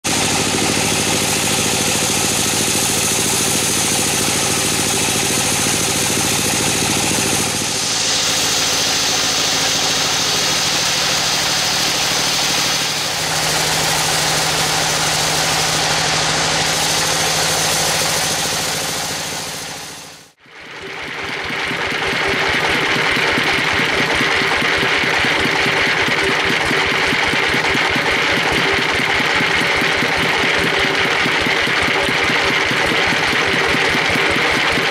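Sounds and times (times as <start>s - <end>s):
bandsaw mill cutting log: 0.0s - 34.9s
drive motor humming: 0.1s - 20.3s.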